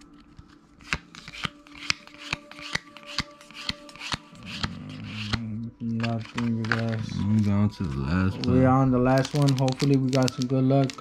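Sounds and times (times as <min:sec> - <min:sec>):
cards flicking: 0:00.8 - 0:07.1.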